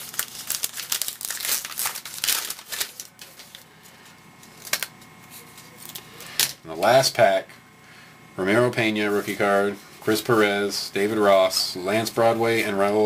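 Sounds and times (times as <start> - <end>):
wrapper crinkling and tearing: 0.0 - 3.8, 4.4 - 6.5.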